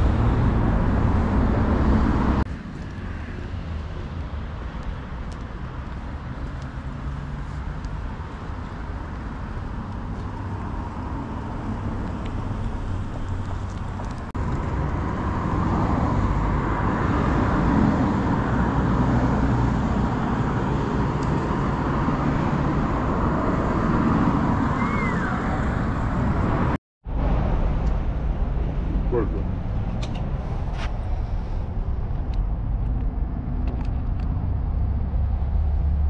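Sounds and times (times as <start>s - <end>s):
road traffic passing: 0.0s - 36.0s.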